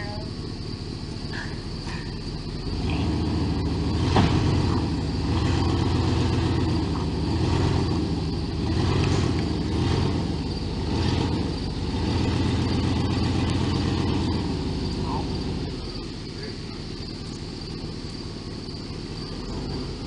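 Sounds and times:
vehicle engine revving: 0.0 - 20.0.

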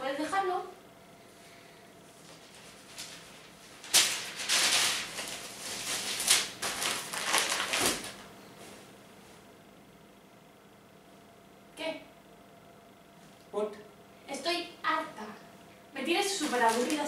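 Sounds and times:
newspaper rustling and crumpling: 2.2 - 8.2, 16.3 - 17.0.

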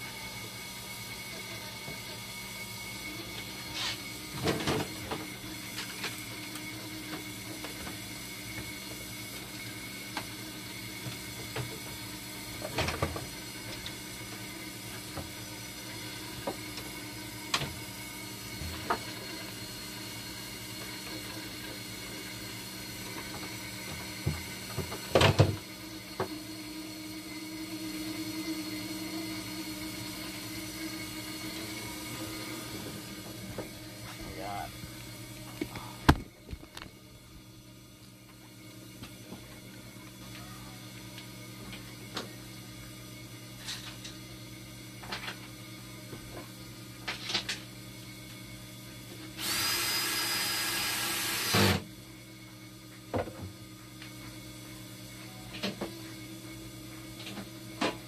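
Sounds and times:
machine humming: 0.0 - 43.2.

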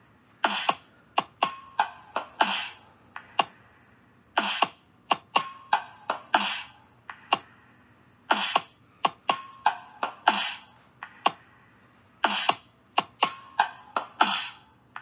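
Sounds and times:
electronic snare bursts: 0.4 - 15.0.

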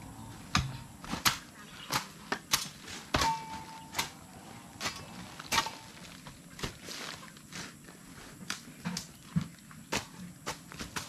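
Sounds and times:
hoes thudding into soil: 0.5 - 4.2, 4.8 - 7.0, 9.0 - 11.0.

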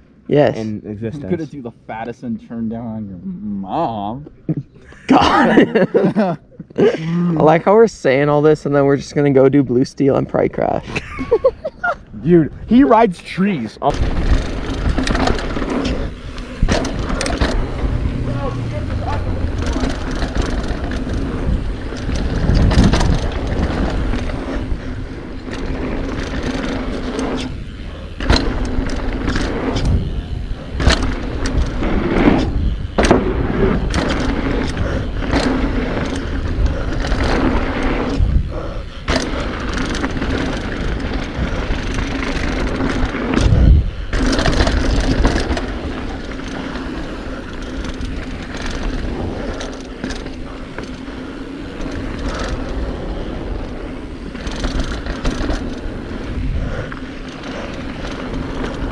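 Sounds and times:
bike tyres rolling on dirt: 12.2 - 58.9.

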